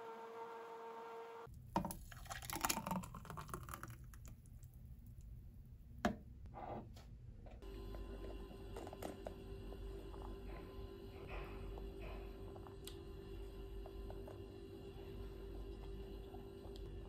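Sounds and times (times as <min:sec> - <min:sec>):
steady hum with faint tone: 0:04.6 - 0:17.0.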